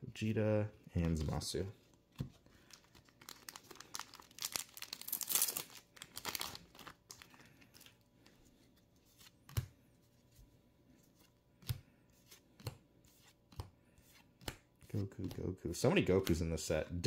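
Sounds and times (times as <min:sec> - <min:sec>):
foil wrapper tearing and crinkling: 0:02.8 - 0:07.5.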